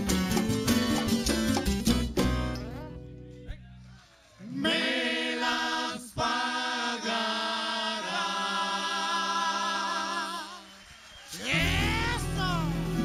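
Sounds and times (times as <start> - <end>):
voices singing in harmony: 4.4 - 10.8.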